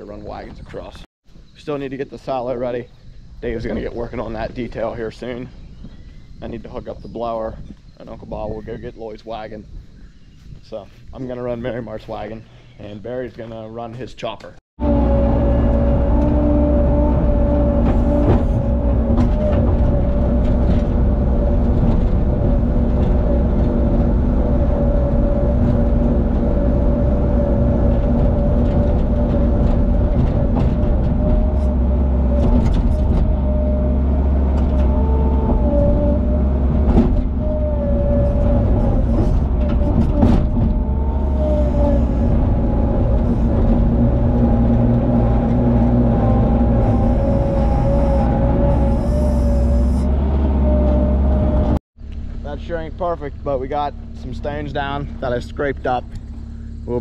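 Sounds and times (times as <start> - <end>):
loader engine running: 14.8 - 57.0.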